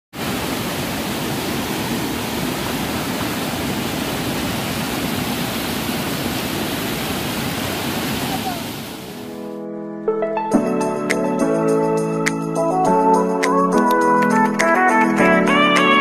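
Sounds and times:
waterfall rushing: 0.1s - 9.5s.

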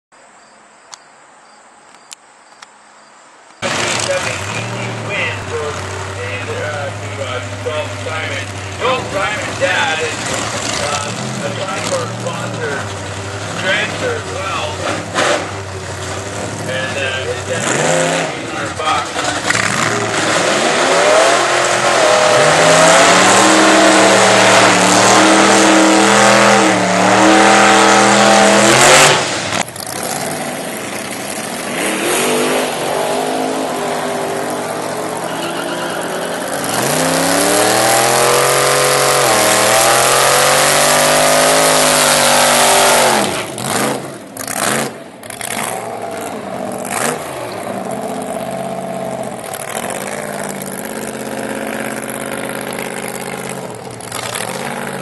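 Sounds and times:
engine cracks: 3.6s - 22.0s, 28.9s - 32.7s, 43.2s - 55.0s
supercharged engine revving: 3.6s - 55.0s.

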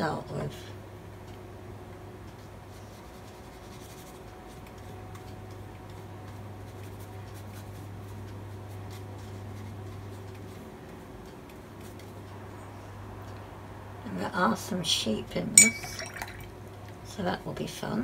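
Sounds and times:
paintbrush stroking paper: 2.7s - 4.6s.

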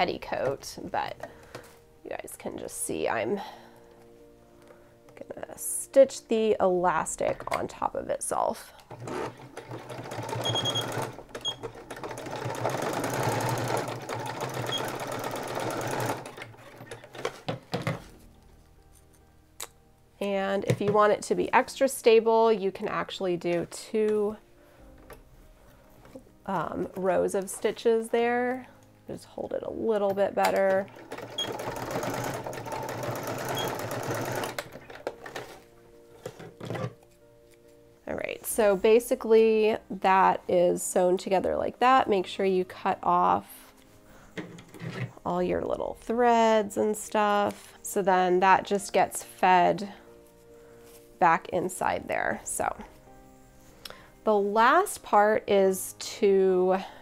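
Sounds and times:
sewing machine stitching: 8.9s - 17.4s, 30.6s - 35.5s.

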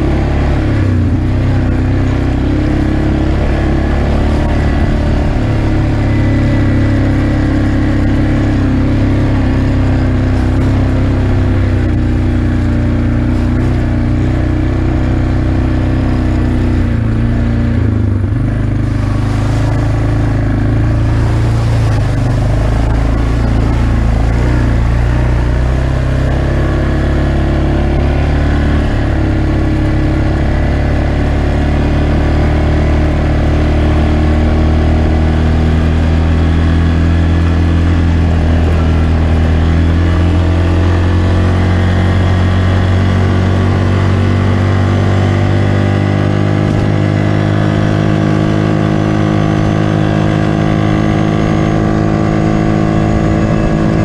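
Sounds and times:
quad engine running: 0.0s - 54.0s.

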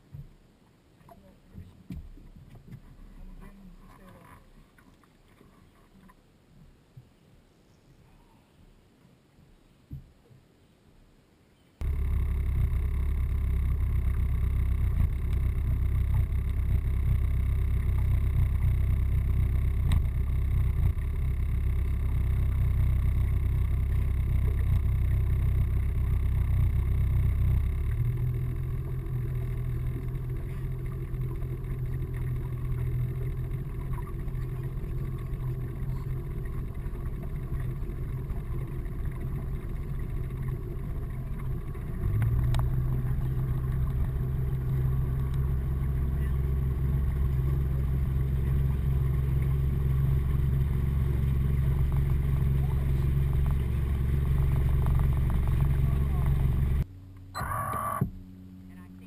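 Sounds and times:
boat motor rumbling: 11.8s - 59.0s.

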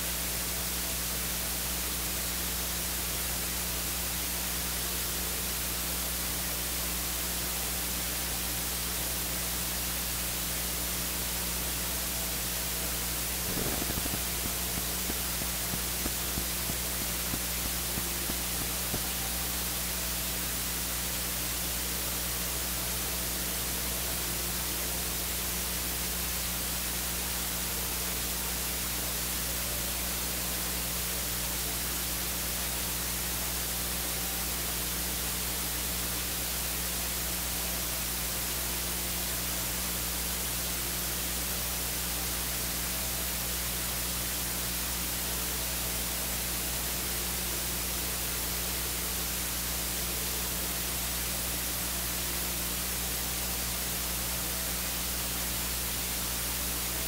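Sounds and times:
electronic static hiss: 0.0s - 57.0s
low hum: 12.8s - 20.0s.

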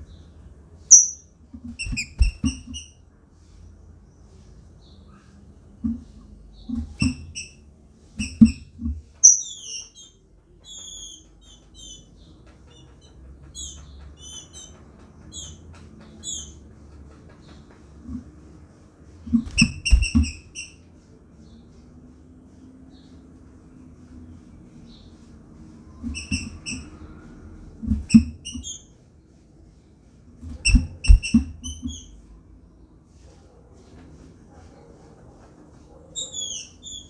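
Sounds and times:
bird chirping calls: 0.0s - 3.0s, 9.2s - 17.9s, 28.0s - 29.0s, 36.2s - 37.0s.

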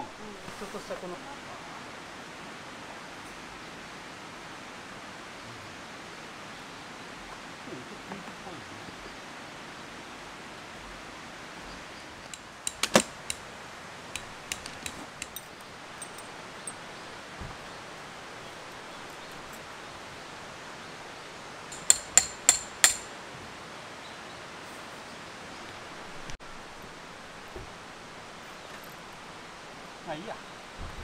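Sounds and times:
hammer striking tent stake: 12.3s - 13.4s, 14.2s - 15.4s, 21.7s - 23.1s.

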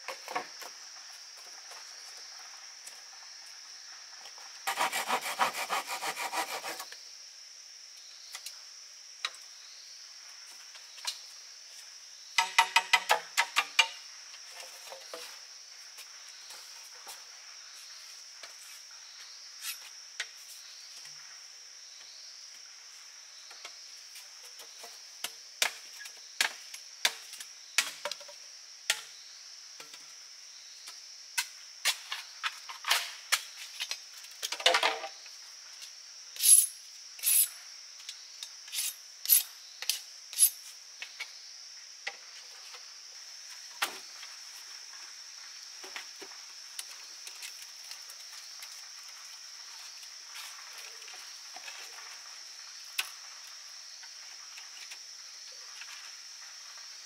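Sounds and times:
insects droning: 0.0s - 57.0s
bamboo poles knocking together: 12.4s - 14.0s, 32.9s - 35.1s.

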